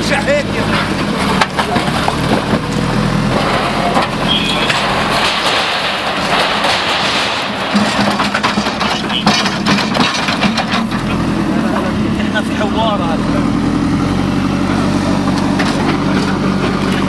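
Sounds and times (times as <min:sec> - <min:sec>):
diesel engine under load: 0:00.0 - 0:17.0
masonry knocking and crunching: 0:00.5 - 0:12.6.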